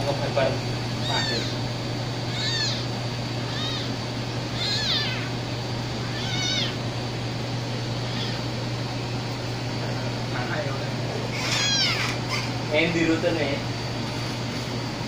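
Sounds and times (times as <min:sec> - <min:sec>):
kittens mewing: 0:01.0 - 0:09.0, 0:11.2 - 0:12.6.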